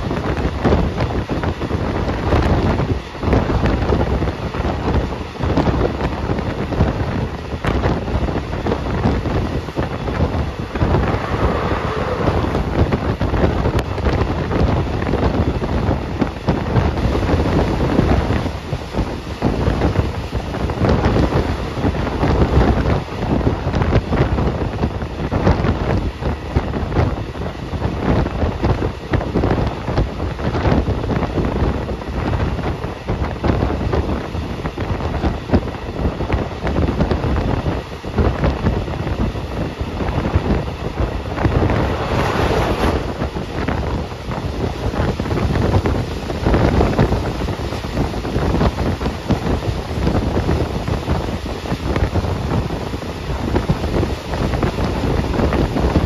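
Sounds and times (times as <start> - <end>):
moving train rumble: 0.0 - 56.0
wind buffeting microphone: 0.0 - 56.0.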